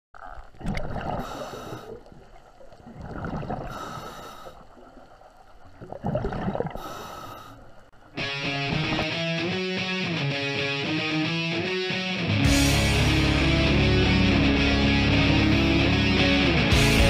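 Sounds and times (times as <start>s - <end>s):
exhaled bubbles burbling: 0.2s - 3.9s, 5.7s - 6.9s
diver breathing through regulator: 1.1s - 2.1s, 3.6s - 4.7s, 6.7s - 7.8s
rock music with electric guitar: 8.2s - 17.0s.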